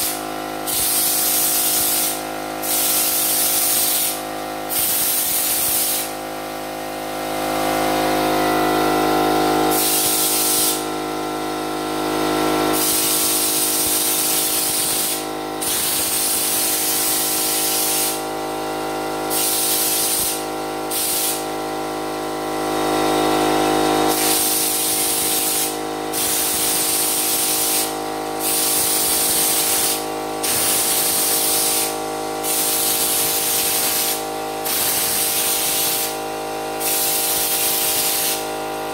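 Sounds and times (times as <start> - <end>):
spray gun hissing: 0.0 - 6.1, 9.7 - 10.8, 12.8 - 18.2, 19.3 - 21.4, 24.1 - 36.2, 36.8 - 38.5
air compressor motor humming: 0.0 - 38.9.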